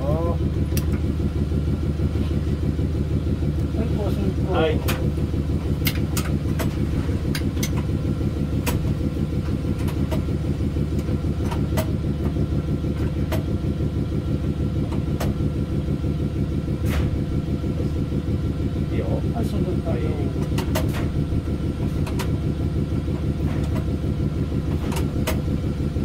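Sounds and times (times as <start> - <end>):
locomotive machinery humming: 0.0 - 26.0
sharp clicks of cab switches: 0.6 - 1.1, 4.8 - 12.4, 13.0 - 13.6, 14.8 - 15.5, 20.3 - 22.4, 24.6 - 26.0.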